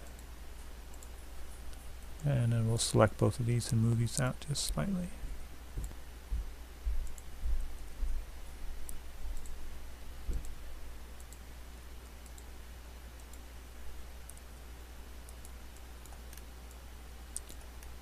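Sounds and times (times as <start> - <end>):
low electrical hum: 0.0 - 18.0
computer mouse clicks: 0.9 - 1.8, 7.0 - 7.3, 8.8 - 9.6, 10.3 - 10.6, 11.2 - 11.4, 12.0 - 12.5, 13.2 - 13.5, 15.2 - 18.0.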